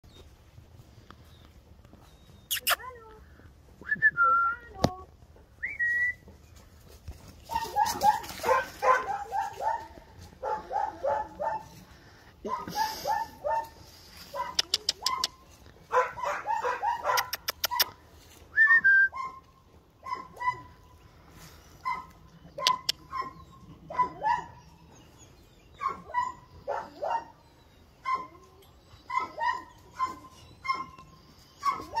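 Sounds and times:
dog yelping barks: 7.4s - 11.7s, 12.4s - 18.0s, 19.1s - 20.8s, 21.8s - 24.6s, 25.8s - 27.4s, 28.0s - 32.0s.

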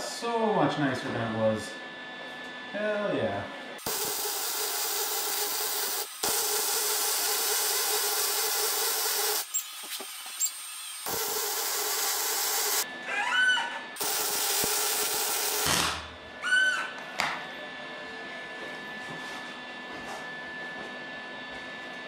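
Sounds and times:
welder arc crackling and hissing: 3.8s - 12.8s, 14.0s - 15.9s.

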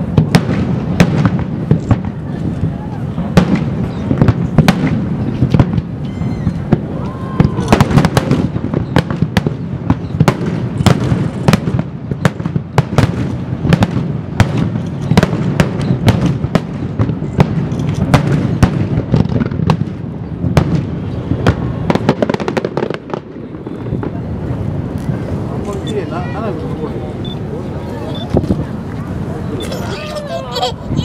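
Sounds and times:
firework shells bursting: 3.3s - 20.0s.

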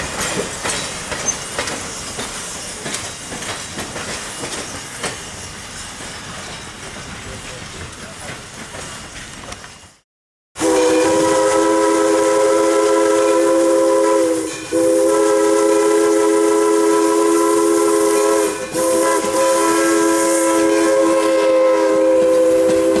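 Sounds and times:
steady steam hiss: 0.0s - 10.0s
steam locomotive chime whistle: 10.6s - 23.0s.

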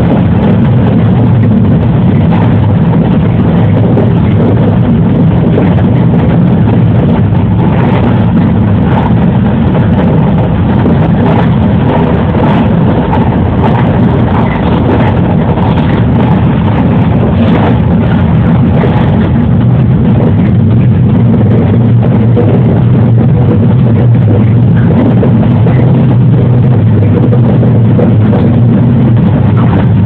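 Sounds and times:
electric train running: 0.0s - 30.0s
wheels rumbling on rails: 0.0s - 30.0s.

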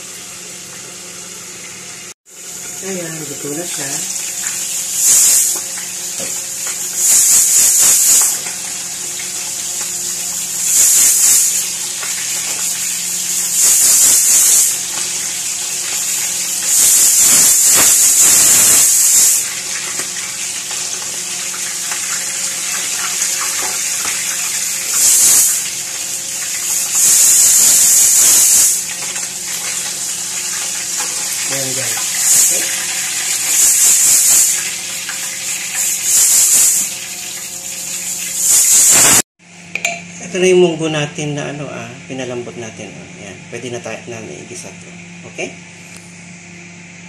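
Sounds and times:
fish sizzling in oil: 0.0s - 39.3s
pressure cooker hissing steam: 2.0s - 39.3s.

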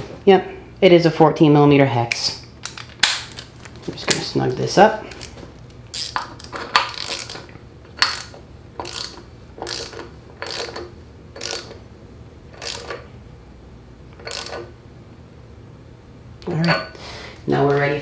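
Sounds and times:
ratchet wrench clicking: 5.9s - 7.4s, 8.0s - 11.8s, 12.6s - 13.0s, 14.2s - 14.7s.

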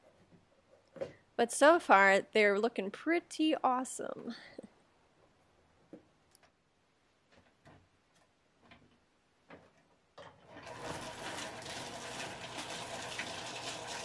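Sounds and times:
rock tumbler running: 10.4s - 14.0s.

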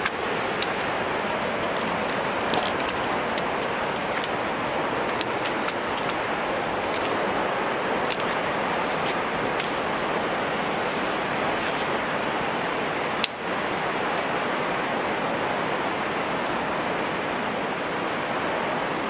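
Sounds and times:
trekking poles and boots clicking on rock: 0.0s - 10.2s, 10.8s - 13.4s, 14.1s - 14.4s
steady rushing noise: 0.0s - 19.0s.

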